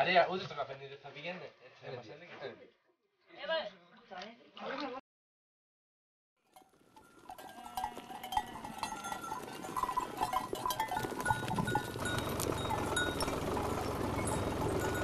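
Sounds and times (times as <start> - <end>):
metallic clinks: 6.5 - 15.0
bell-like rings: 6.6 - 15.0.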